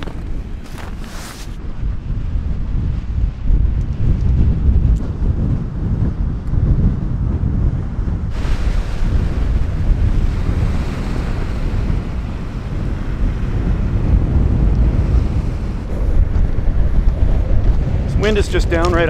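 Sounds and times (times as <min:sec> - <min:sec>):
wind buffeting microphone: 0:00.0 - 0:19.0
waves washing onto pebbles: 0:08.3 - 0:12.7.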